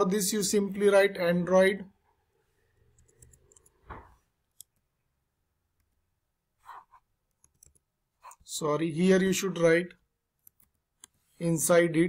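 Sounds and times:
keyboard clicks: 2.9 - 4.9, 7.3 - 8.4.

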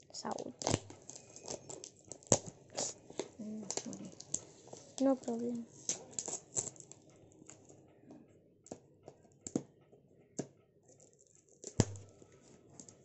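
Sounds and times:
faint rustle of wrapping: 0.1 - 7.8.

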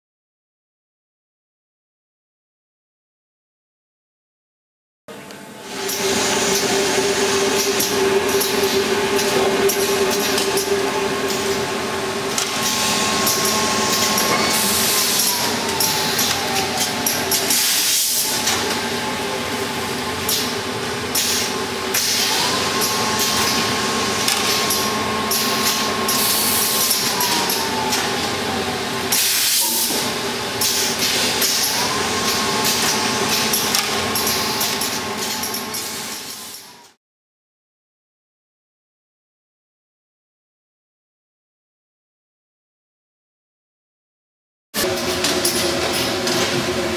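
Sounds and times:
machine humming: 5.1 - 35.8
machine whine rising and falling: 5.3 - 37.0.

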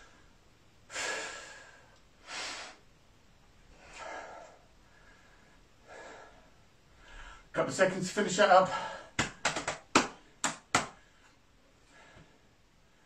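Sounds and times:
man breathing heavily: 0.0 - 2.8, 3.7 - 7.5, 8.6 - 9.2, 10.2 - 13.0.

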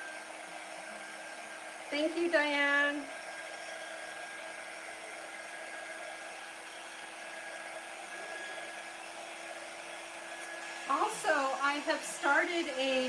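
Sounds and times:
handheld dryer blowing: 0.0 - 13.0.

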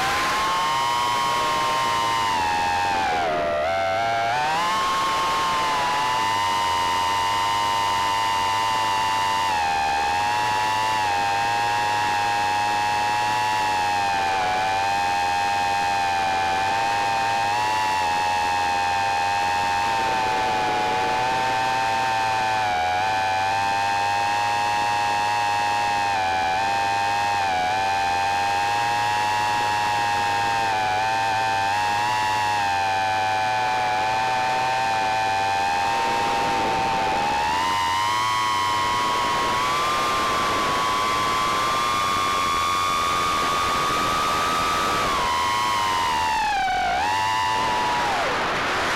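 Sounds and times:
drone motors whining: 33.0 - 48.9.

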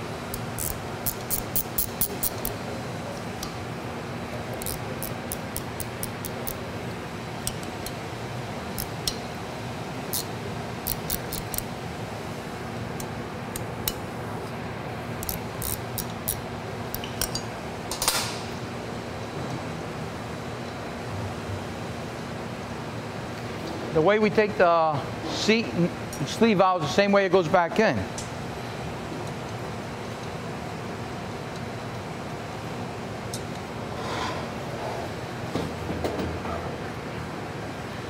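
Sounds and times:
workshop hum: 0.0 - 38.0
rapid metallic clicking: 0.3 - 2.6, 4.6 - 6.6, 10.9 - 11.7.

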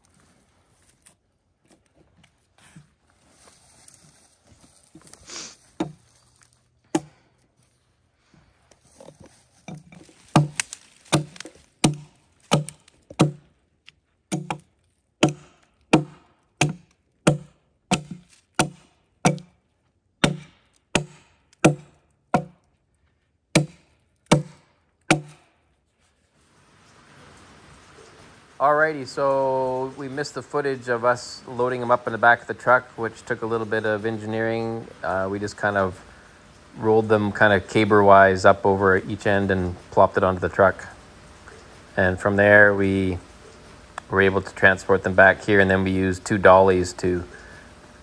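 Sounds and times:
axe chopping wood: 6.9 - 7.2, 9.7 - 13.5, 14.3 - 19.6, 20.2 - 22.7, 23.5 - 25.6.

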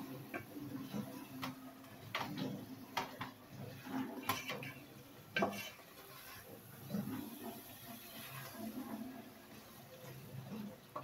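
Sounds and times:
spatula scraping and knocking pot: 0.3 - 7.1.

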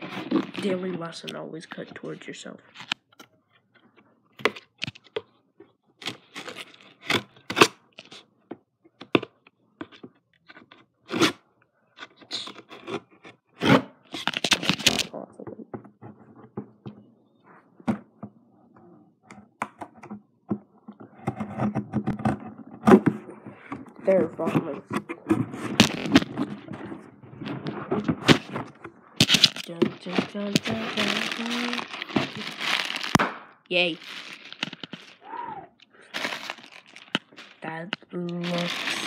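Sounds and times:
cardboard and tape tearing: 6.0 - 8.2, 12.2 - 15.1, 25.0 - 26.7, 27.4 - 39.0.

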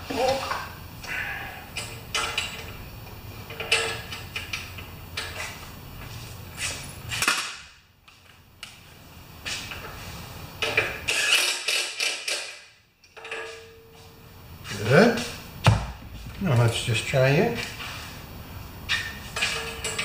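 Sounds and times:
tools and parts clattering: 1.7 - 2.8, 3.4 - 5.6, 10.6 - 14.1, 18.9 - 20.0.

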